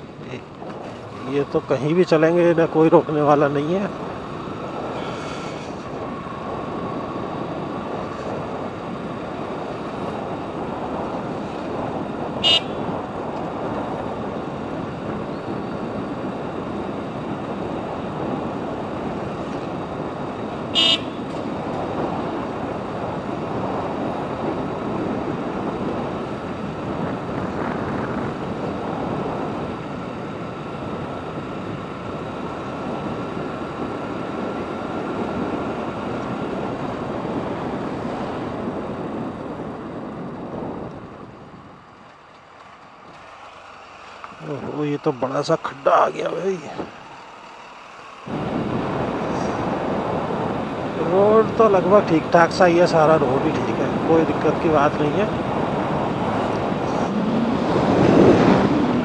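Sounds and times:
wind on microphone: 0.0s - 42.4s, 48.2s - 59.0s
motorcycle engine riding: 0.0s - 59.0s
horn toots: 12.4s - 12.9s, 20.7s - 21.3s.

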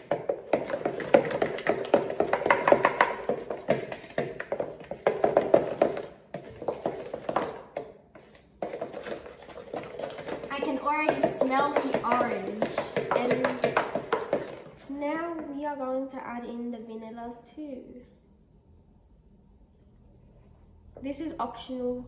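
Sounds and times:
wooden spoon stirring batter in bowl: 0.0s - 15.5s.

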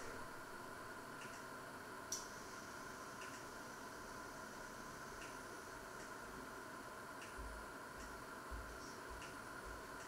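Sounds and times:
faint steady hiss: 0.0s - 10.0s
soft ticks: 1.2s - 1.5s, 3.2s - 3.5s, 6.0s - 6.2s, 7.2s - 9.4s.

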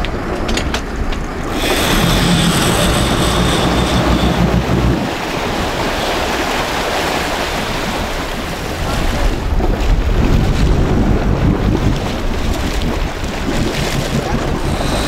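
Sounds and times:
wind on microphone: 0.0s - 15.0s
boat engine running: 1.3s - 15.0s
sea water splashing: 1.4s - 15.0s
thin high whine: 1.5s - 6.2s.

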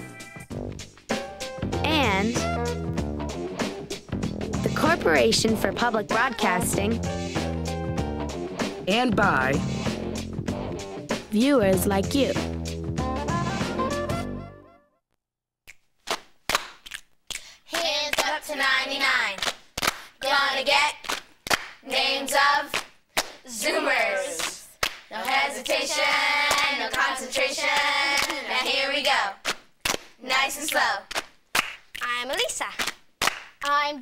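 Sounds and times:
children clapping in rhythm: 16.0s - 34.0s
children singing: 23.5s - 29.4s.

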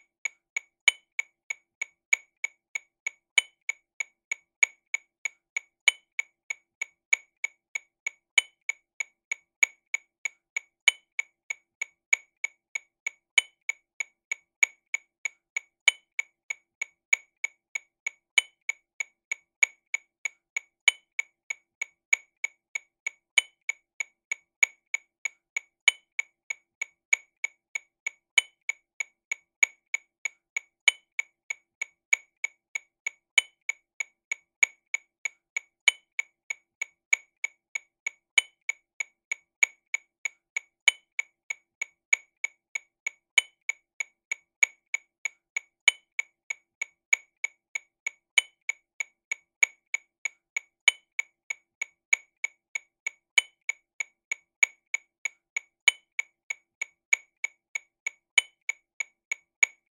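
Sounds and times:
metronome clicks: 45.8s - 46.2s, 50.8s - 51.2s.

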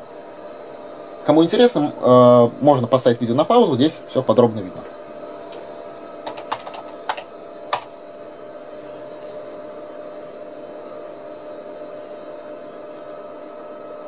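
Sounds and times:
computer fan and hard disk whir: 0.0s - 14.0s
keyboard key clicks: 6.2s - 7.9s.

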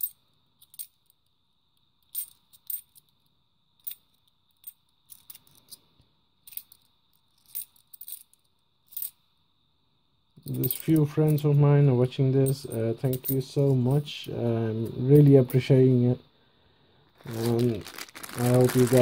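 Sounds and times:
coins clinking: 2.1s - 3.1s, 6.5s - 9.2s, 10.4s - 11.5s, 12.4s - 13.4s, 17.2s - 19.0s.

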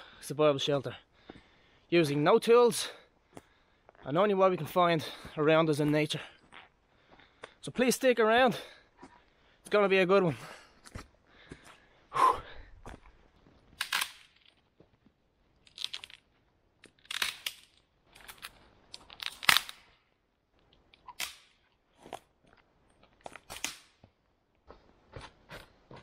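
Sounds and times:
branches cracking and snapping: 15.6s - 19.8s.

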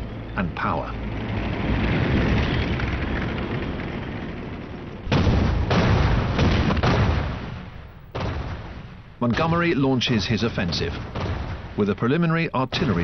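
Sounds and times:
artillery rumble: 0.0s - 13.0s
loud artillery blasts: 4.7s - 13.0s.

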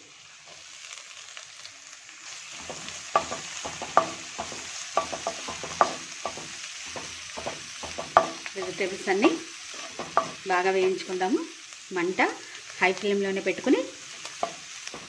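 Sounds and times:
vegetables sizzling in hot oil: 0.0s - 15.0s
spatula scraping and knocking pan: 2.5s - 11.1s, 14.0s - 15.0s.

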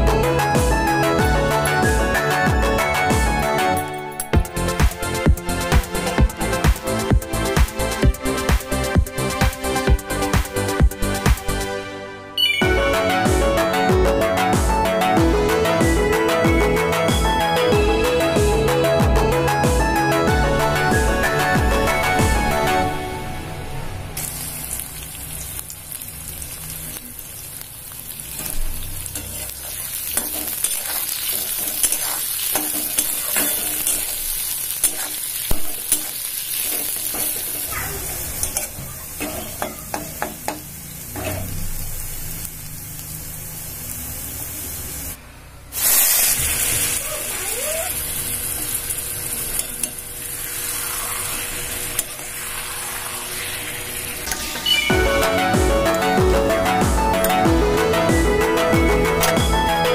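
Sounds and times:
food sizzling in hot oil: 24.1s - 57.9s
metal spatula scraping pan: 29.2s - 34.2s.

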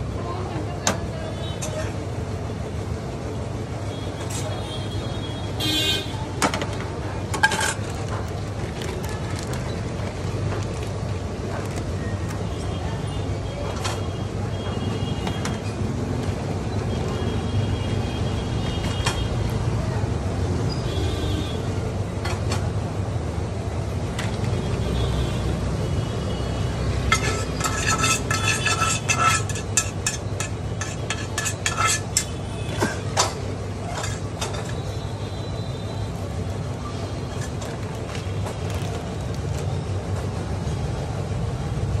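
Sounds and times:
metal utensils and dishes clinking: 6.5s - 12.0s, 27.1s - 35.0s, 37.2s - 39.0s.

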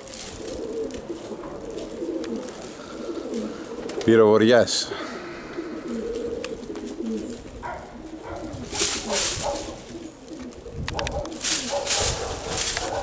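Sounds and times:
pigeons cooing: 0.0s - 13.0s.

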